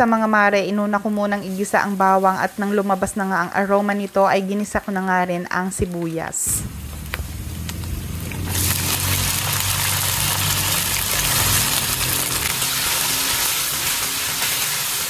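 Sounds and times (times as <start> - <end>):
meat sizzling in a wok: 0.8 - 4.5, 6.6 - 15.0
marinade poured into wok: 6.7 - 15.0.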